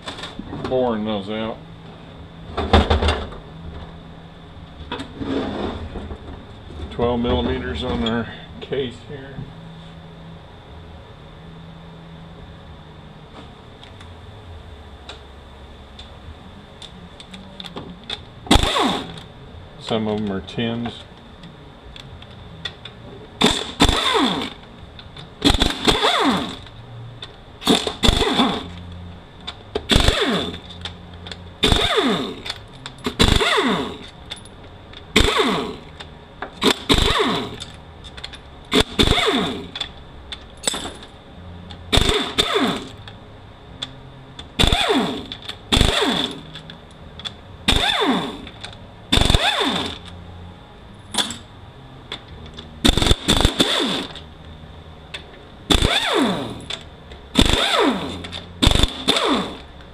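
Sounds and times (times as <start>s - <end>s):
air ratchet whirring: 18.5s - 19.3s, 23.4s - 24.6s, 25.4s - 26.8s, 27.6s - 28.8s, 29.9s - 34.2s, 35.1s - 36.0s, 36.6s - 40.0s, 41.9s - 43.1s, 44.6s - 46.7s, 47.7s - 50.2s, 52.8s - 54.3s, 55.7s - 59.7s.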